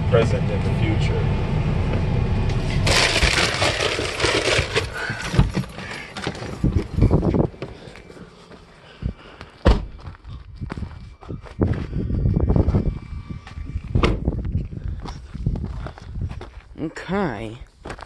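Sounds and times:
wind rushing in car cabin: 6.3s - 7.8s, 9.0s - 16.5s.

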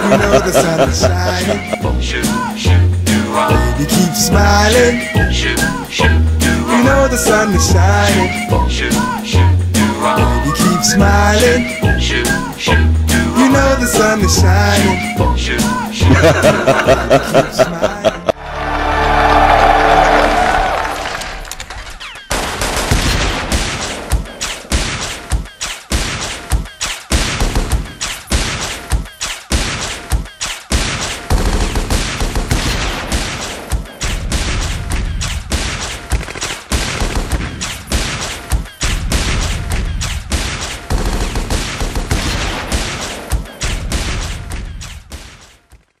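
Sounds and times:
automatic gunfire: 22.3s - 25.2s, 30.9s - 34.8s, 40.3s - 43.3s.

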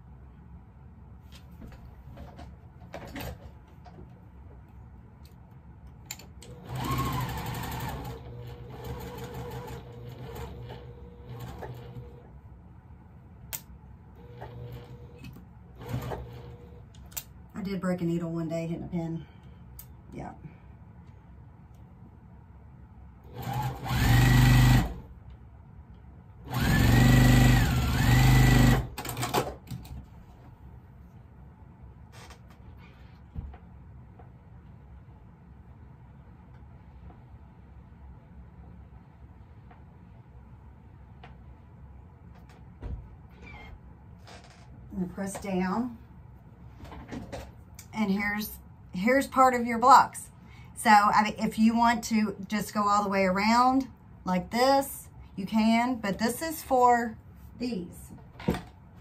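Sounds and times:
sewing machine stitching: 6.4s - 12.2s, 14.2s - 16.8s, 23.3s - 25.0s, 26.5s - 29.5s.

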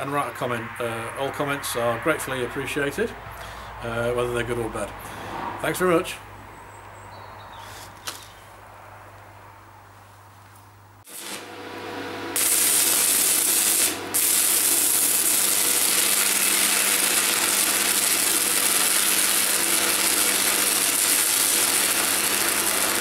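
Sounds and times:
arc welding hiss: 11.0s - 11.6s, 12.2s - 23.0s.

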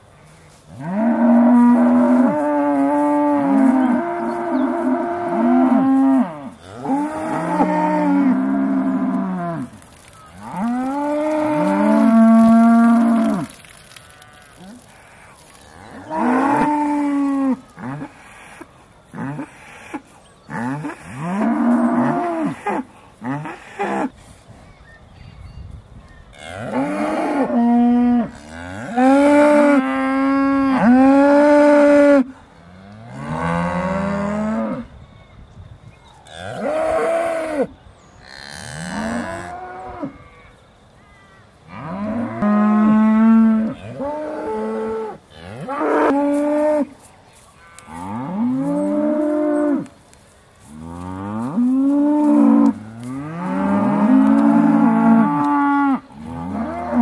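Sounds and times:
cows mooing: 0.8s - 18.1s, 50.8s - 57.0s.

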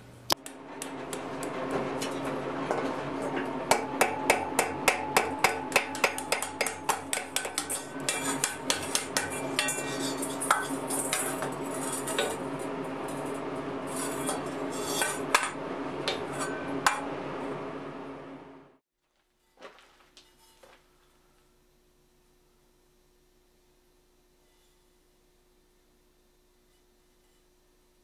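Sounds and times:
hammer striking iron on anvil: 2.7s - 12.5s, 14.2s - 17.2s.

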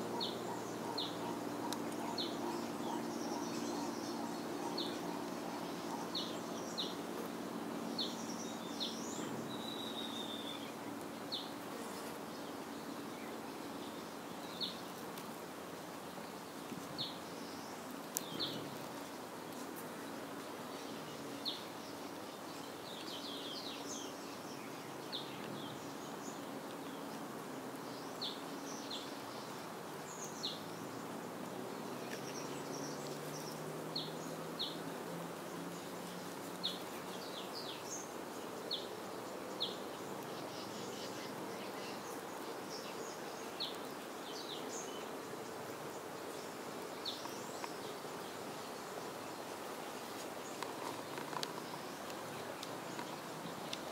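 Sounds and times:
bird chirping: 0.0s - 7.0s, 7.8s - 11.6s.

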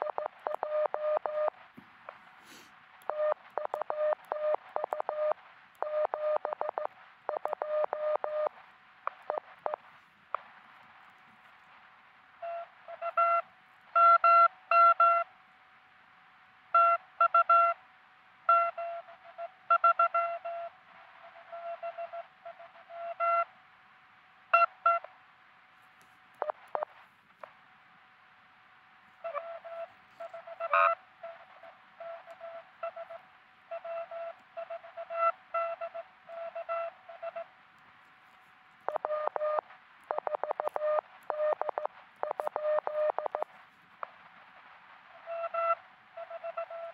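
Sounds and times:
morse code beeps: 0.0s - 1.6s, 3.1s - 8.5s, 12.4s - 13.4s, 14.0s - 15.2s, 18.5s - 20.7s, 22.9s - 23.5s, 32.0s - 37.5s, 38.9s - 43.5s, 45.2s - 46.9s
faint steady tone: 0.0s - 46.9s.

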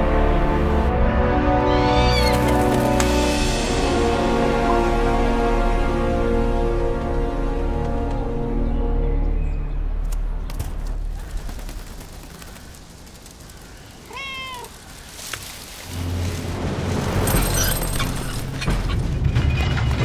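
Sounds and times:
music: 0.0s - 11.2s, 15.9s - 20.0s
cat meowing: 1.7s - 2.5s, 14.0s - 14.8s.

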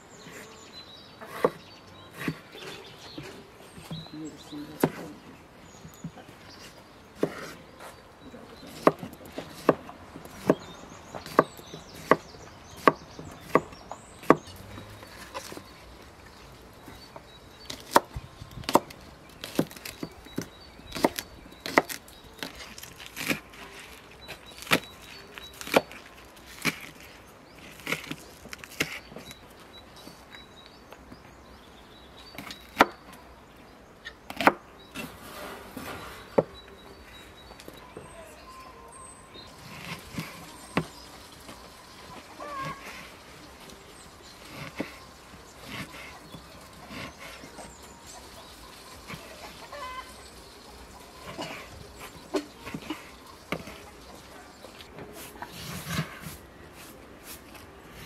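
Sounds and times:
knife chopping on wooden board: 7.2s - 7.6s, 8.7s - 15.6s, 17.7s - 23.4s.

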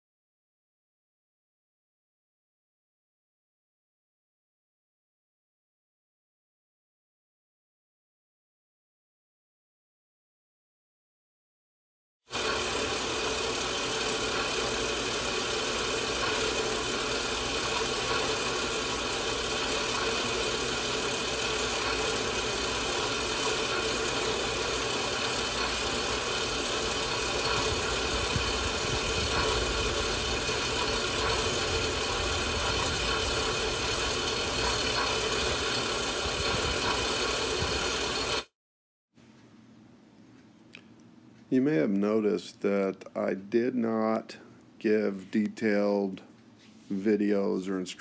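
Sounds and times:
bandsaw cutting metal: 12.3s - 38.5s.

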